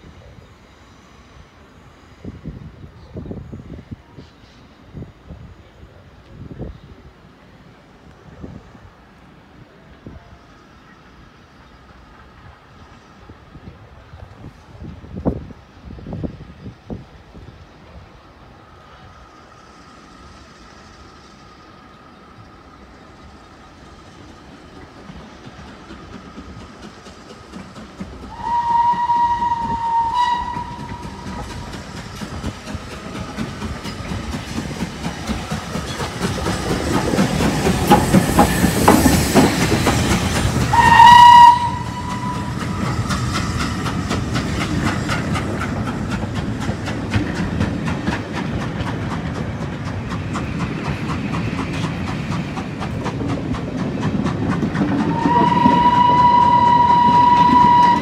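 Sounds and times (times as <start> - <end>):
steam locomotive passing: 0.0 - 58.0
train wheels clattering over rail joints: 24.1 - 58.0
steam whistle blasts: 28.3 - 31.6, 40.7 - 43.0, 55.0 - 58.0.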